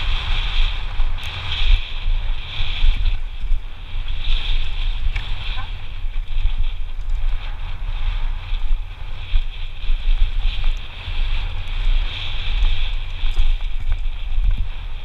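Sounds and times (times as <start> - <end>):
steady low rumble: 0.0 - 15.0
wind buffeting microphone: 0.0 - 15.0.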